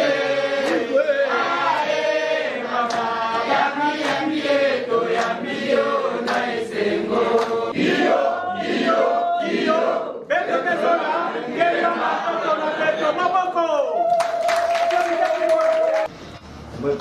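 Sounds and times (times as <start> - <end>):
group chanting in unison: 0.0 - 13.4
sharp claps: 0.6 - 0.9, 2.9 - 3.1, 4.0 - 4.3, 5.1 - 5.4, 6.2 - 6.5, 7.3 - 7.6.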